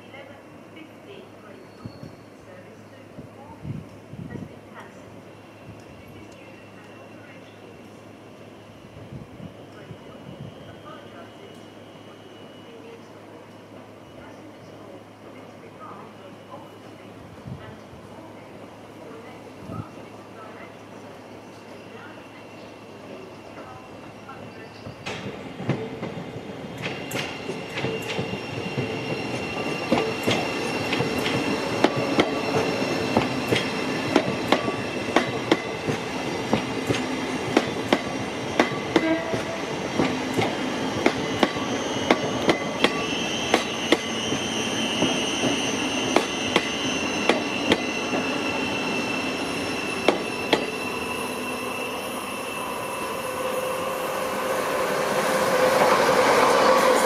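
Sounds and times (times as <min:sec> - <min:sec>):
train rumble: 0:12.8 - 0:51.6
train wheels clicking over rail joints: 0:24.9 - 0:44.1, 0:45.0 - 0:48.3.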